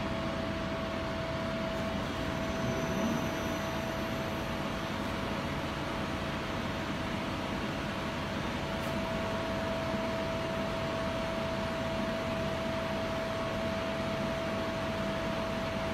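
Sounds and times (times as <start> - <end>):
lathe spindle running: 1.8 - 5.0.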